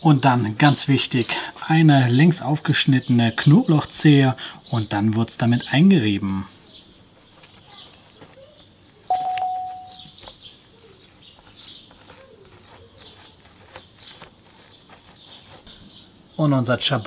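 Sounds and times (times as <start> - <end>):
bell-like ding: 9.1 - 10.0
garlic scraping over bread: 10.2 - 16.0.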